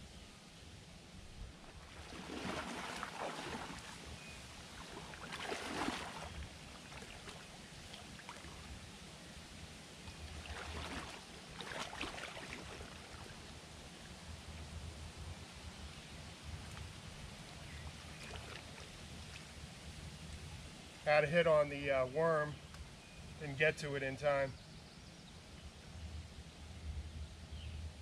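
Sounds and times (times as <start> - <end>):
water sloshing around legs: 1.5 - 8.7, 10.2 - 13.5, 18.0 - 19.5.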